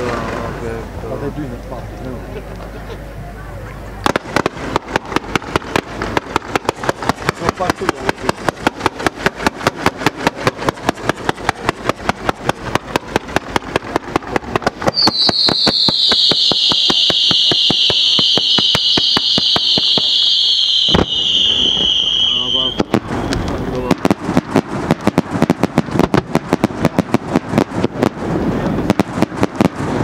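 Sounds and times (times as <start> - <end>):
firework fountains hissing: 0.0 - 30.0
fireworks firing sharp shots: 4.0 - 30.0.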